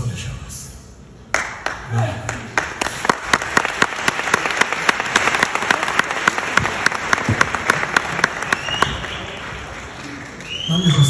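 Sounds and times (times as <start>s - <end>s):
single sharp claps: 1.3s - 9.2s
audience clapping: 1.3s - 11.0s.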